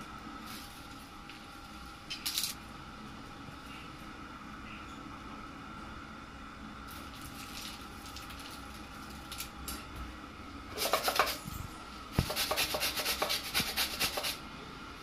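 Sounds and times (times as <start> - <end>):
faint steady hum: 0.0 - 15.0
quick rubbing strokes: 10.7 - 11.4, 12.2 - 14.4.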